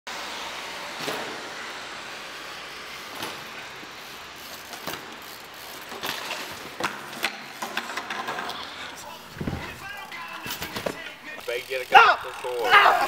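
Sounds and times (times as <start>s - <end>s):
street noise hiss: 0.1s - 13.0s
bike clicks and knocks: 3.0s - 13.0s.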